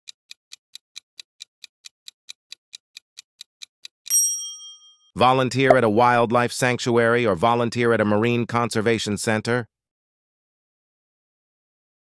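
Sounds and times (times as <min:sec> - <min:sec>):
quick clock ticks: 0:00.1 - 0:04.2
bell ding: 0:04.1 - 0:05.1.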